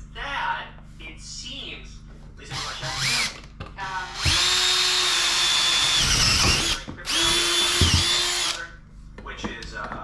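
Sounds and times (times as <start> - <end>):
cordless drill driving into wall: 4.2 - 8.6.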